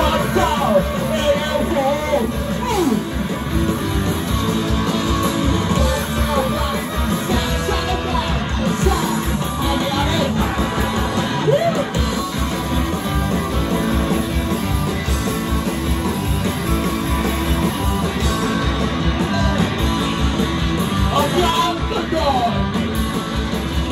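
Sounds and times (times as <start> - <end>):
bass guitar: 0.0 - 23.9
drums: 0.0 - 23.9
electric guitars: 0.0 - 23.9
person singing: 5.8 - 12.0.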